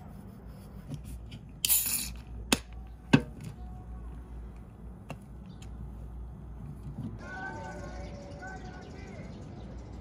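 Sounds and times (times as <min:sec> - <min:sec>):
can opening with crack and hiss: 0:01.6 - 0:02.7.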